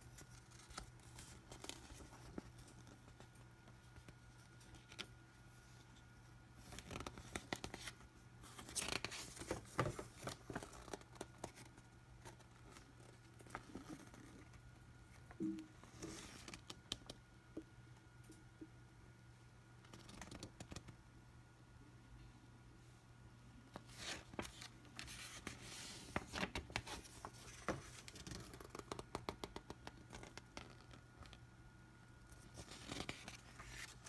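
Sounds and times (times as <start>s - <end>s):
paper pages rustling: 0.0s - 5.8s, 6.6s - 14.4s, 23.8s - 31.4s, 32.3s - 34.0s.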